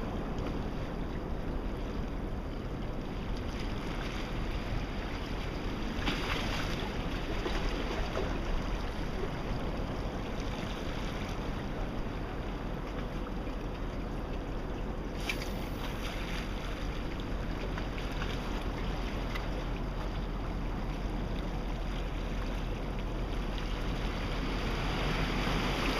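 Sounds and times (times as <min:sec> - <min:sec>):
small waves washing against rocks: 0:23.7 - 0:25.9.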